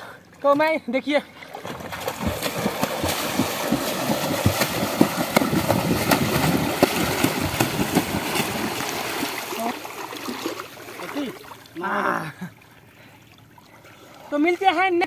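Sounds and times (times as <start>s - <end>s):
water splashing around people wading: 0.0s - 15.0s.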